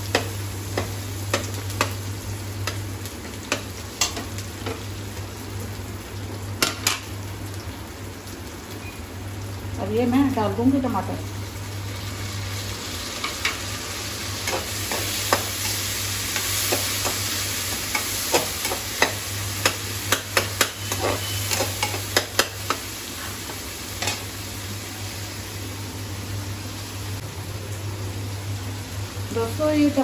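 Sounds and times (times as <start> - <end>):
tomatoes sizzling in hot oil: 0.0 - 30.0
metal spoon scraping a pan: 17.8 - 23.4.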